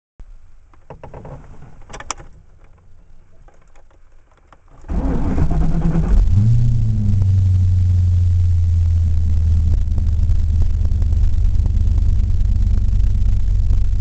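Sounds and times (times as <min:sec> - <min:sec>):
starter cranking engine: 0:04.7 - 0:06.5
car engine idling: 0:04.7 - 0:14.0.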